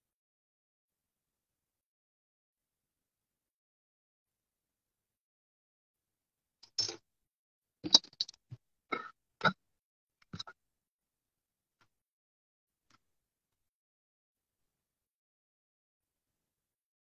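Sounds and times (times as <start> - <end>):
objects clicking on a tabletop: 6.6 - 7.0, 7.8 - 8.4.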